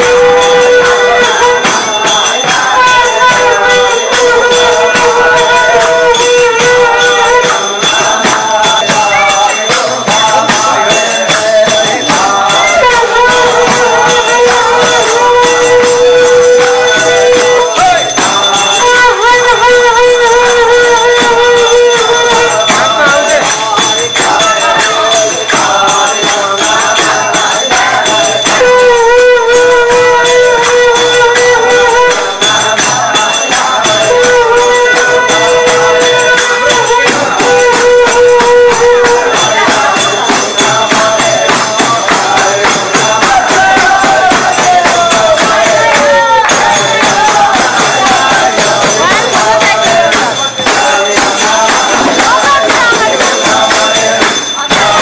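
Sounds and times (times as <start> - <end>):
drums: 0.0 - 55.0
reedy shawm melody: 0.0 - 55.0
small cymbals jangling: 0.0 - 55.0.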